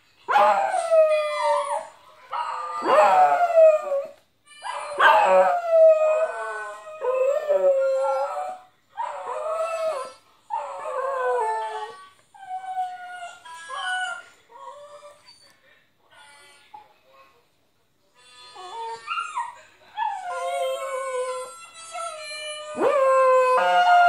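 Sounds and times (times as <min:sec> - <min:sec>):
dog howling: 0:00.3 - 0:15.2, 0:20.0 - 0:24.0.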